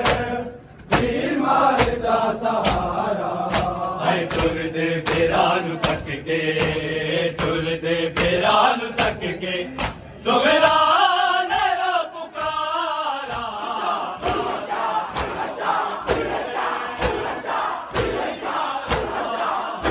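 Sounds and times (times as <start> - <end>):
hands slapping chests: 0.0 - 9.2, 9.8 - 10.1, 14.2 - 19.9
group of voices chanting loudly: 0.0 - 19.9
men chanting together: 0.0 - 19.9.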